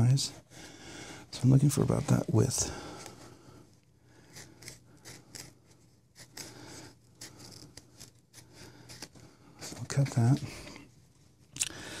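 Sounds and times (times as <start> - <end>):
scissors snipping foam: 4.3 - 6.6.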